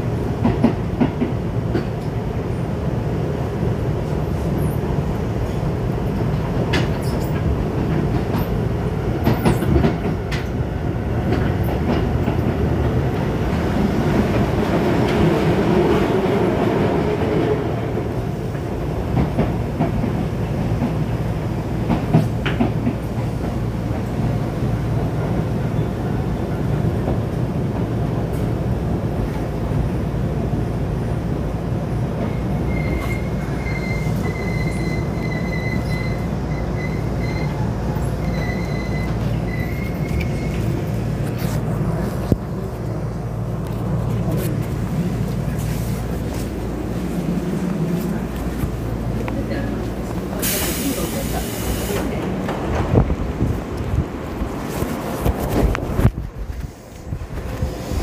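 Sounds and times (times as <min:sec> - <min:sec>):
train wheels rumbling on rail: 0:00.0 - 0:58.0
rail-joint clicks: 0:05.4 - 0:15.3, 0:21.8 - 0:24.3, 0:32.2 - 0:43.0.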